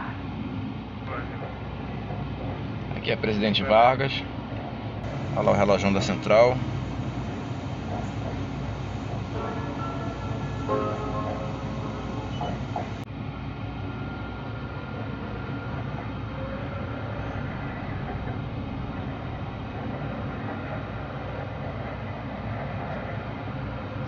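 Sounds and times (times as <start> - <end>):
tram running on rails: 0.0 - 24.0
faint steady tones: 5.0 - 13.1.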